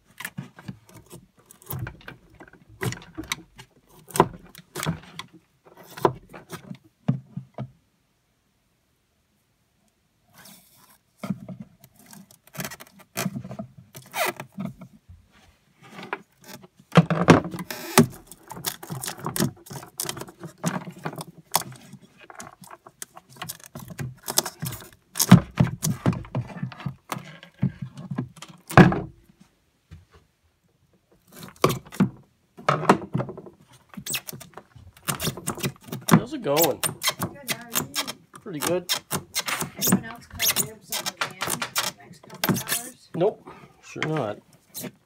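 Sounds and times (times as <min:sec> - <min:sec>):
wires and connectors rattling: 0:31.3 - 0:43.0.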